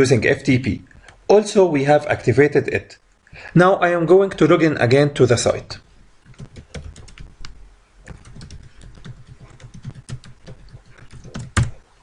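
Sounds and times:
keyboard typing: 6.2 - 11.8
loud keyboard click: 8.1 - 11.8.

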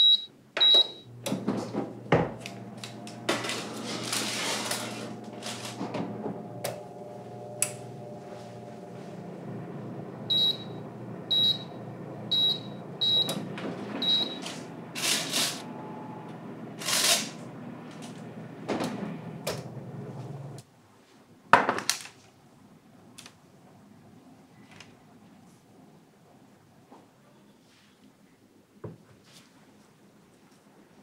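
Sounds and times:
electric oven humming: 0.1 - 20.6
oven door opening: 1.2 - 11.7, 12.6 - 16.4, 17.1 - 20.6
baking tray scraping over rack: 1.4 - 9.5.

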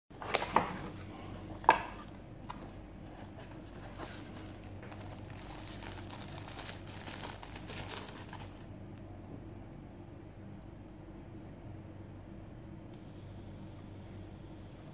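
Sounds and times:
paper wrapping rustling: 2.4 - 8.7.

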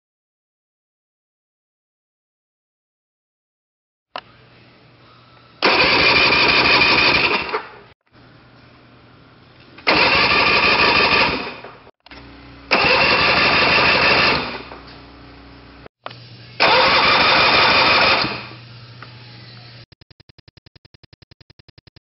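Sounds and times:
outboard motor cranking: 5.6 - 7.8, 9.8 - 11.6, 12.7 - 14.7, 16.6 - 18.5.

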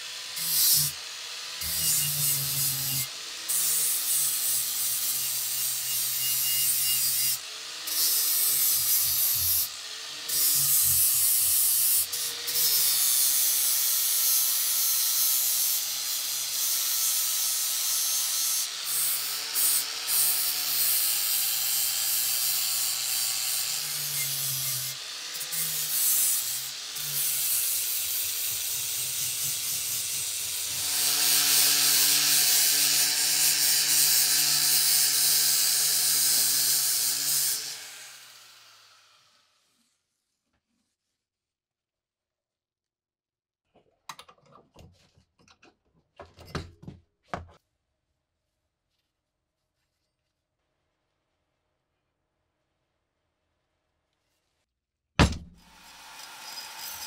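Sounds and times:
angle grinder grinding metal: 0.0 - 39.5, 55.3 - 57.0.

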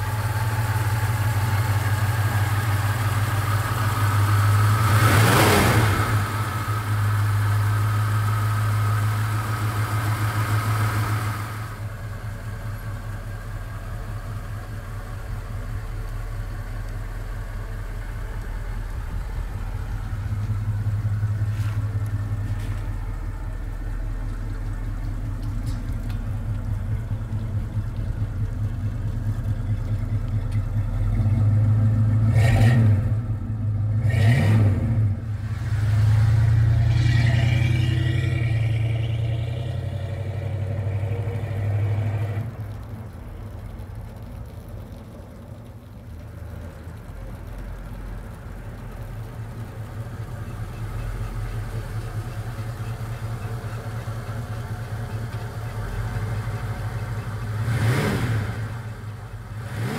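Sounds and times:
car engine revving: 0.0 - 12.0, 14.3 - 45.0, 47.3 - 59.9.

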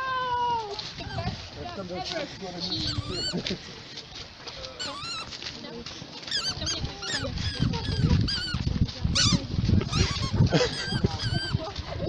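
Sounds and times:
low rumble of group moving: 0.0 - 12.0
high-pitched squeaky calls: 2.7 - 3.4, 4.8 - 5.4, 6.3 - 8.6, 9.2 - 11.7.

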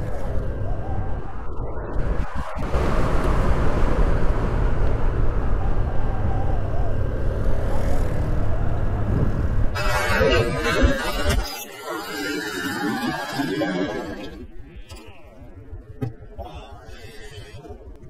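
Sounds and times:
wind buffeting microphone: 0.0 - 11.4.

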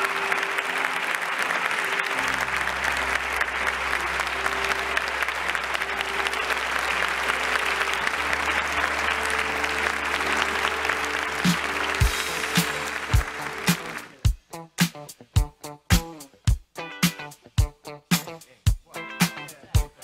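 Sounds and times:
guests applauding: 0.0 - 14.3
recessional music with bass notes: 0.0 - 20.0.

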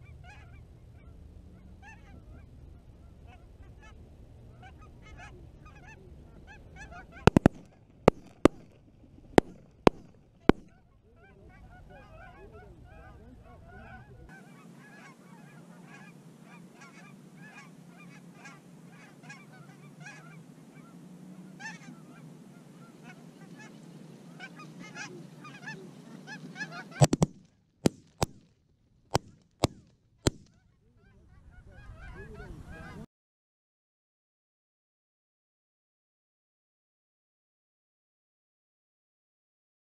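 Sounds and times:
geese honking: 0.0 - 27.4, 29.1 - 33.1
shotgun blasts: 7.3 - 10.8, 27.0 - 28.4, 29.1 - 30.6.

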